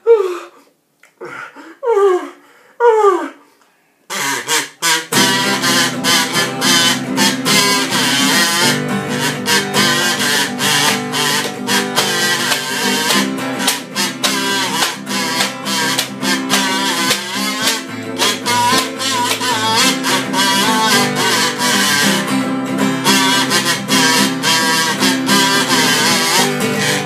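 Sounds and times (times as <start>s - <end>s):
acoustic guitar strumming: 4.1s - 27.0s.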